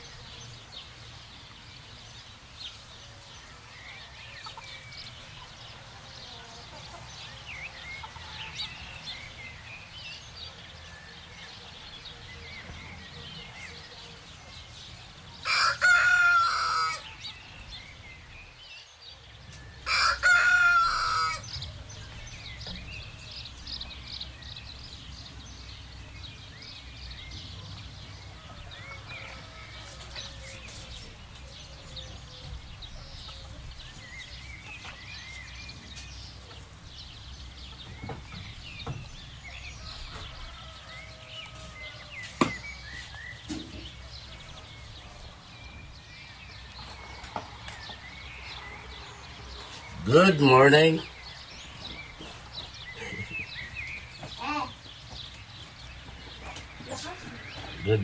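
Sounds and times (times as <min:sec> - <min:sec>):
chickens clucking: 0:02.7 - 0:09.7, 0:27.5 - 0:50.9
rooster crowing: 0:15.4 - 0:17.1, 0:19.8 - 0:21.4, 0:28.3 - 0:30.6, 0:39.8 - 0:42.3.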